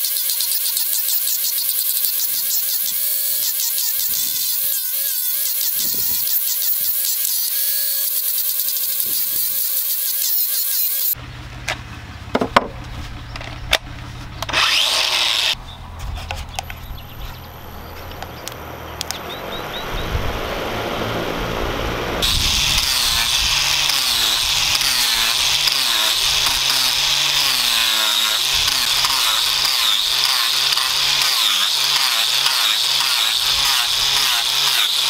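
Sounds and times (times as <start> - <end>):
angle grinder sanding wood: 0.0 - 11.2, 14.0 - 15.6, 22.2 - 35.0
knocks and handling sounds: 11.6 - 14.6.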